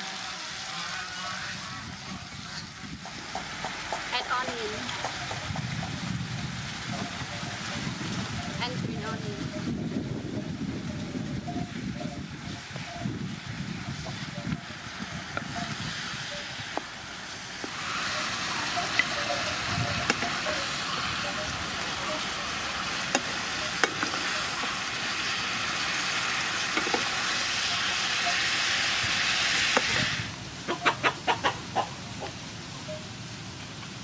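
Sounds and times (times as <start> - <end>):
stir-fry sizzling in a pan: 0.0 - 34.0.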